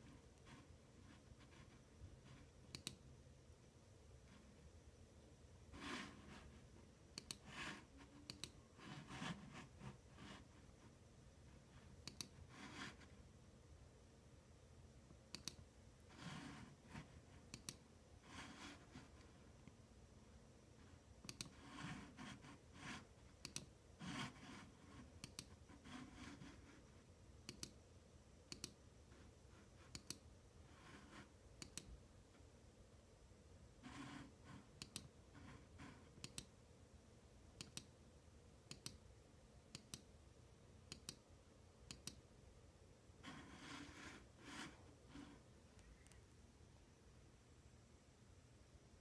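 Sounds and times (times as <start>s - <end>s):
computer mouse clicks: 2.3s - 3.1s, 5.8s - 10.5s, 12.0s - 13.0s, 15.3s - 18.8s, 21.2s - 26.6s, 27.4s - 27.8s, 28.5s - 28.8s, 29.9s - 31.9s, 33.9s - 36.6s, 37.6s - 38.0s, 38.6s - 39.0s, 39.7s - 40.1s, 40.9s - 42.2s.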